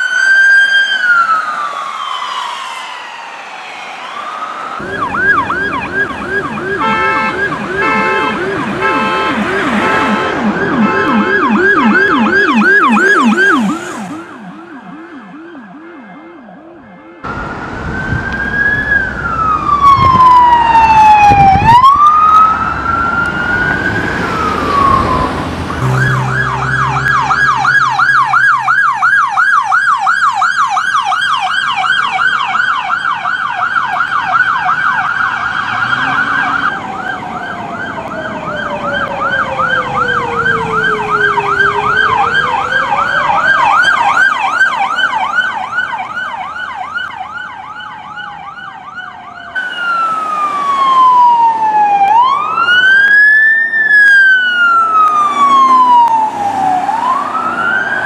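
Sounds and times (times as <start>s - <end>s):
police siren wailing: 0.0s - 58.0s
police siren yelping: 0.0s - 58.0s
second siren wailing: 0.0s - 58.0s.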